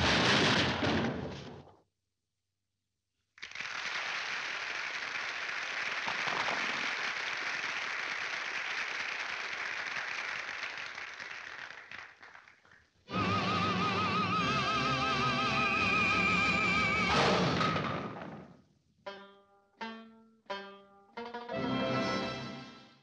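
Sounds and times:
audience applause: 3.4 - 14.5.

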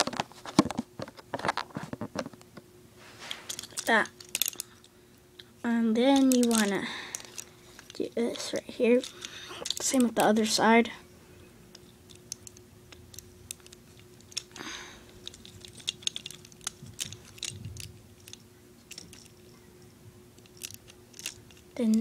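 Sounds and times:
soft rustle: 3.0 - 3.7
plastic toy joints clicking: 6.2 - 7.9, 9.0 - 10.5, 15.2 - 19.3, 20.4 - 22.0.

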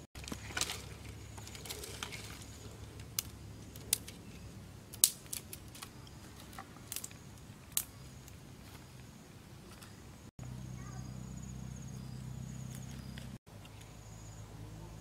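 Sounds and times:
twigs snapping: 0.2 - 4.2, 4.9 - 8.4.

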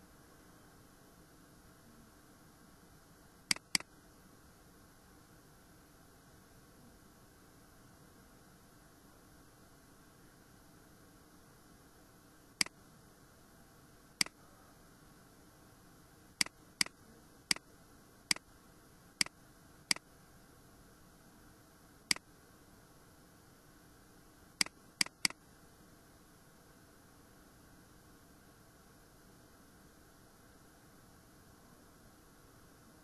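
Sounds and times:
faint steady hiss: 0.0 - 33.0
mouse button clicking: 3.5 - 3.9, 24.6 - 25.4.

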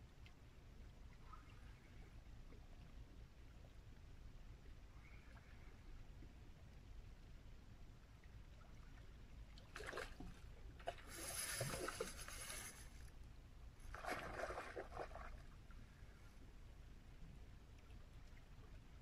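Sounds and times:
fish splashing at water surface: 9.8 - 13.0.

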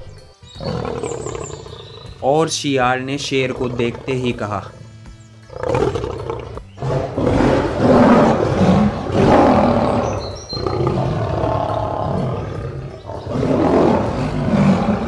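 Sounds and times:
lion roaring: 0.6 - 2.0, 3.4 - 4.4, 5.5 - 15.0.

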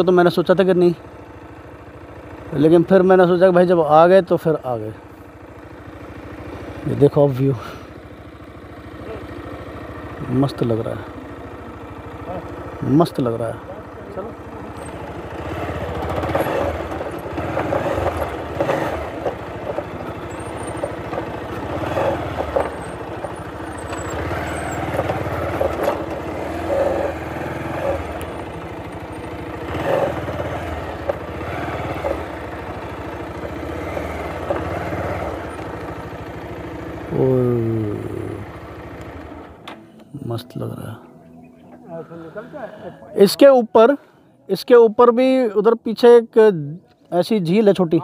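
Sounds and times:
motorcycle engine running: 0.0 - 48.0.

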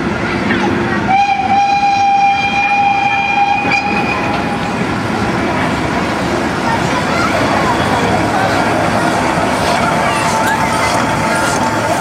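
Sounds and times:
train carriages rumbling on track: 0.0 - 12.0
locomotive whistle blast: 1.1 - 4.5.

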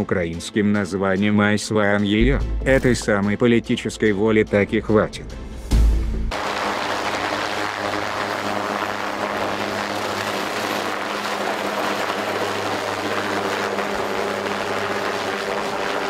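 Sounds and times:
helicopter droning hum: 6.3 - 16.0.

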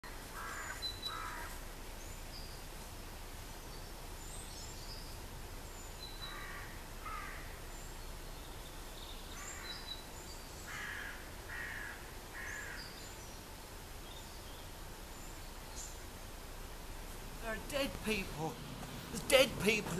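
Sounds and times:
songbirds chirping: 0.0 - 19.9
crow cawing: 0.4 - 1.6, 6.2 - 7.6, 9.4 - 9.9, 10.7 - 12.9.

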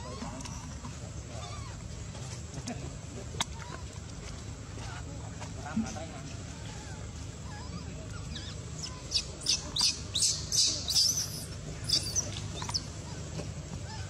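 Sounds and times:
baby monkey squealing: 7.5 - 13.2.

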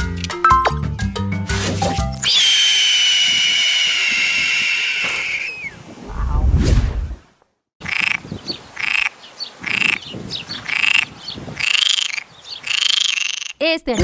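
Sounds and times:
whoosh sound effect: 6.0 - 7.2.

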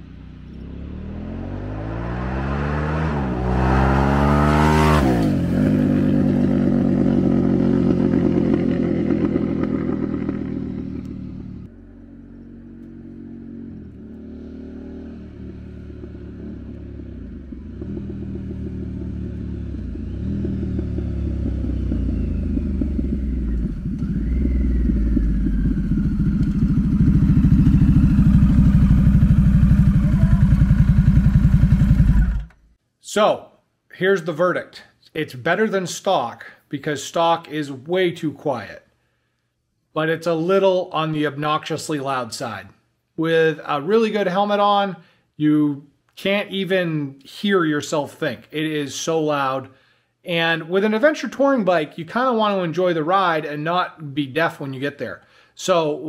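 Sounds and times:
motorcycle accelerating through gears: 0.0 - 32.6
motorcycle passing at speed: 0.0 - 32.6.

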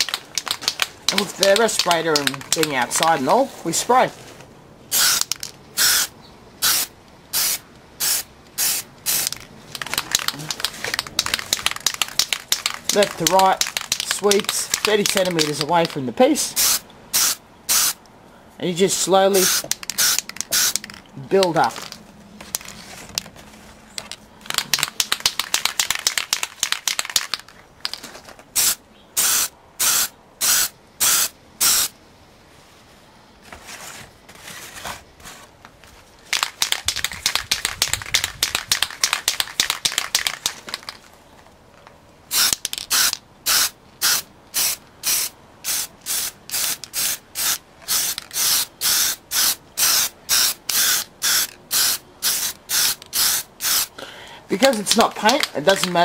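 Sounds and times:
aerosol can hissing in bursts: 4.9 - 9.3, 16.6 - 18.0, 19.4 - 20.8, 28.6 - 31.9, 42.3 - 53.9.

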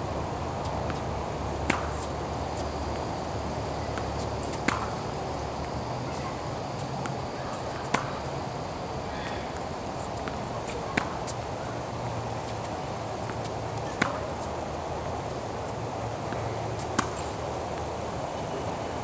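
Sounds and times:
low background hum: 0.0 - 19.0
tennis racket hitting ball: 1.6 - 2.1, 4.0 - 5.0, 7.8 - 8.2, 10.0 - 11.4, 13.4 - 14.4, 16.3 - 17.3.

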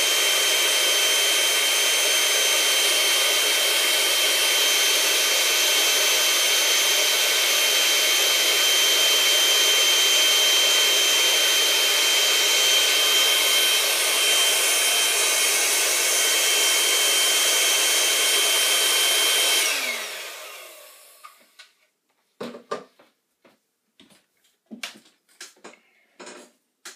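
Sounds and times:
electric air pump whining: 0.0 - 21.6.

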